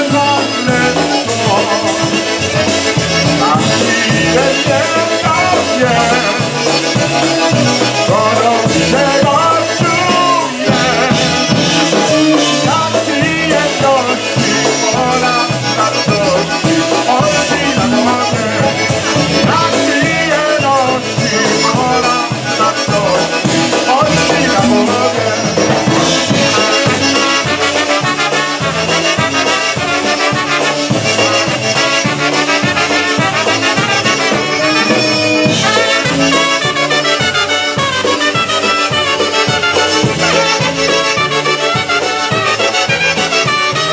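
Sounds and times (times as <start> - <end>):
man singing into a microphone: 0.0 - 27.5
drums oom-pah beat: 0.0 - 43.9
polka band playing: 0.0 - 43.9
trumpets and saxophone: 0.0 - 43.9.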